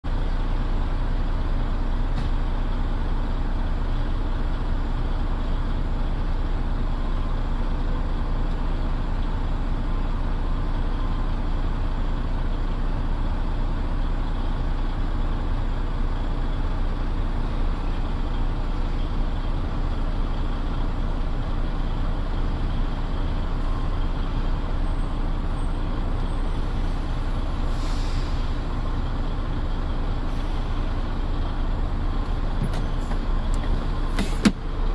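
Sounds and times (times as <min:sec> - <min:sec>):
diesel engines droning: 0:00.0 - 0:34.9
short hiss: 0:27.7 - 0:28.6.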